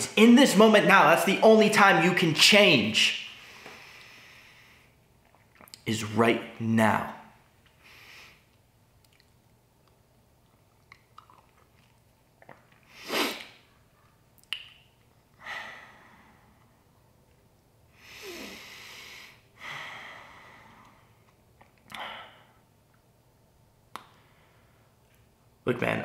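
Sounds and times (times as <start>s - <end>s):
man breathing: 3.4s - 5.0s, 7.8s - 8.5s, 15.4s - 16.8s, 17.9s - 21.2s, 21.9s - 22.6s
sharp sniff: 12.9s - 13.6s.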